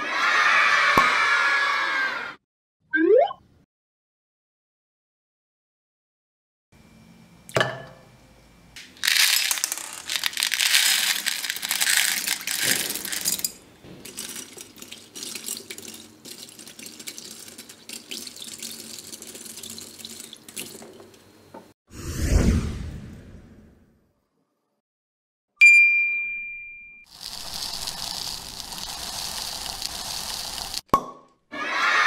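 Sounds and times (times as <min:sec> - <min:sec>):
water pouring into glass bowl: 0:14.2 - 0:20.9.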